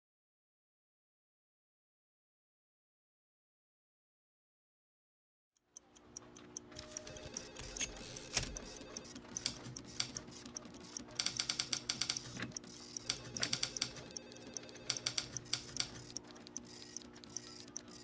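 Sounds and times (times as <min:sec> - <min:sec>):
sparse ticking: 0:05.7 - 0:18.0.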